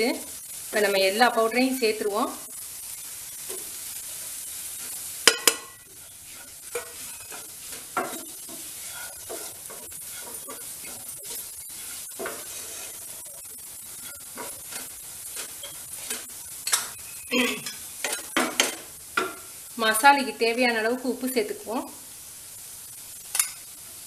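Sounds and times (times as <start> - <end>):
vegetables sizzling in a frying pan: 0.0 - 24.0
spatula scraping a pan: 0.6 - 19.5.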